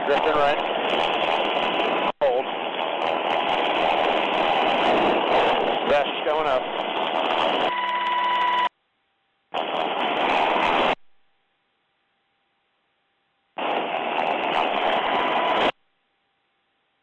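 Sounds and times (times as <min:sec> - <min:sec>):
helicopter over radio intercom: 0:00.0 - 0:01.6, 0:02.2 - 0:08.6.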